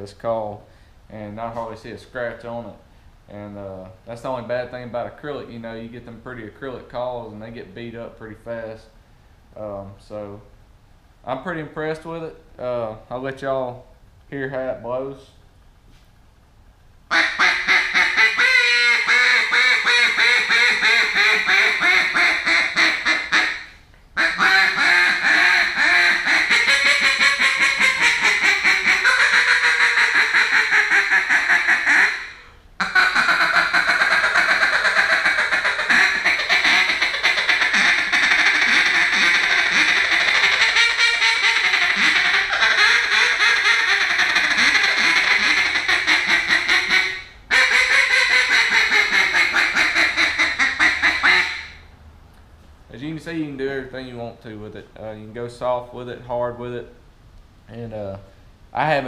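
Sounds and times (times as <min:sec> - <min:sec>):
duck call quacking: 0:17.1 - 0:51.8.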